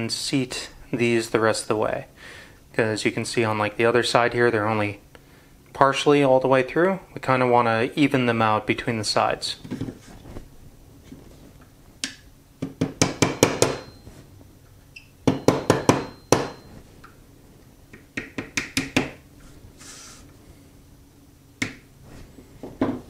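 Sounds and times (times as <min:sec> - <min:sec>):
hammer tapping metal punch: 0:12.6 - 0:14.0, 0:15.2 - 0:16.7
faint high ring: 0:13.8 - 0:14.4, 0:15.4 - 0:16.9.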